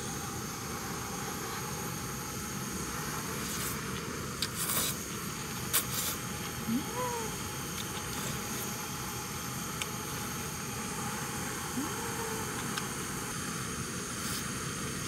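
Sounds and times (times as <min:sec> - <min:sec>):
steady background hiss: 0:00.0 - 0:15.0
person humming: 0:06.6 - 0:07.4, 0:11.7 - 0:12.8.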